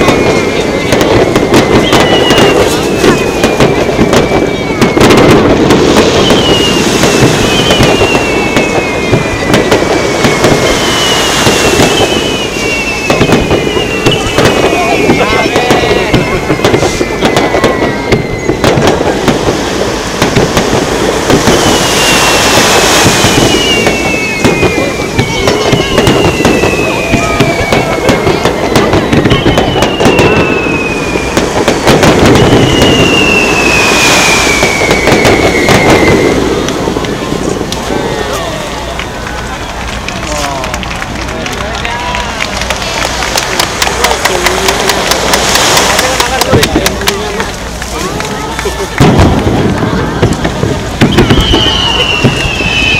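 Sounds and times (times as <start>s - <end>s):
high falling firework whistles: 0.0s - 52.9s
rumble of firework bursts and crackle: 0.0s - 52.9s
sharp firework bangs: 0.0s - 52.9s
continuous rumble: 36.3s - 52.9s.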